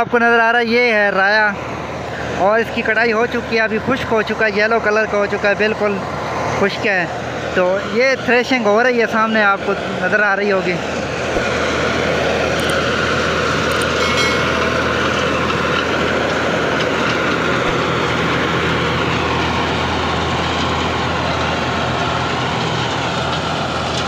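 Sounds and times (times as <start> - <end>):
threshing machine drone: 9.7 - 24.0
tractor engine running: 10.8 - 24.0.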